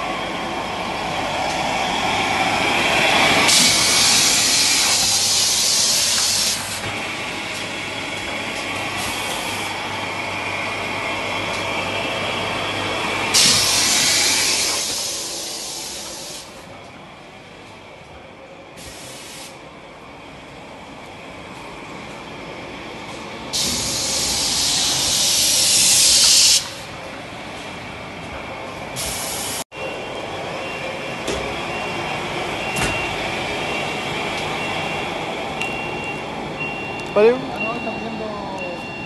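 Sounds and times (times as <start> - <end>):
packing machine clatter and hum: 3.1 - 17.0, 30.8 - 37.3
loud hissing: 13.3 - 16.5, 23.6 - 26.6.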